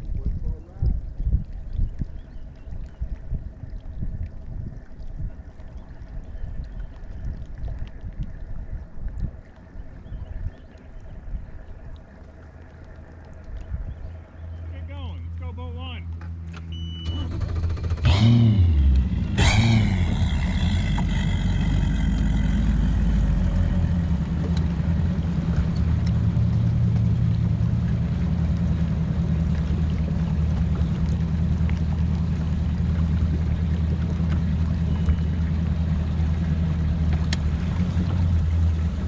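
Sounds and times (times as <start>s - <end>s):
outboard motor idling: 9.8s - 39.0s.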